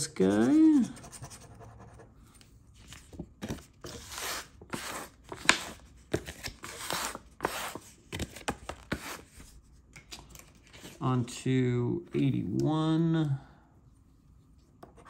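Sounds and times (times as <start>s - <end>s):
scratching lottery tickets: 0.0s - 1.6s.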